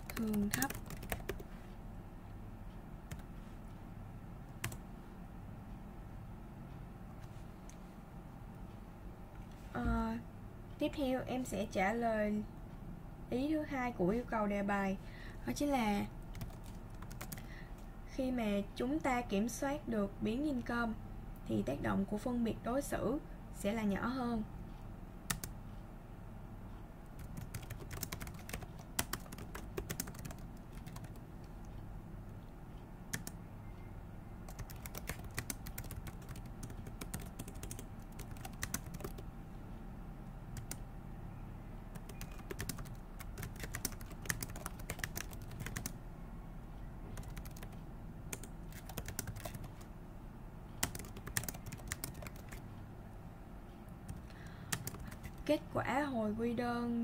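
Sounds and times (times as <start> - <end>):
typing on a keyboard: 0.0 - 1.5, 3.1 - 3.3, 4.6 - 4.8, 16.3 - 17.5, 25.3 - 25.5, 27.2 - 31.2, 33.1 - 33.4, 34.5 - 39.2, 40.6 - 40.8, 41.9 - 46.0, 47.1 - 49.9, 50.8 - 52.6, 54.1 - 55.5
faint low hum: 0.0 - 57.0.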